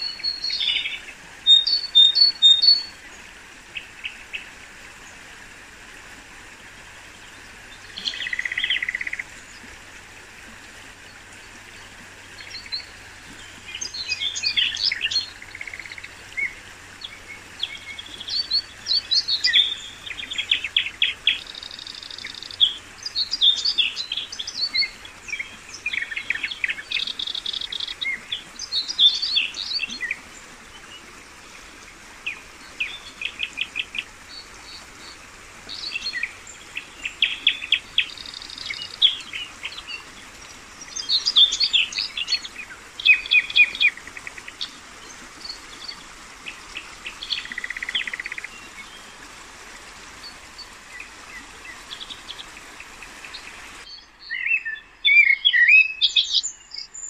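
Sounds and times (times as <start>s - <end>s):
songbirds chirping and trilling: 0.0s - 5.2s, 7.0s - 9.8s, 10.9s - 57.0s.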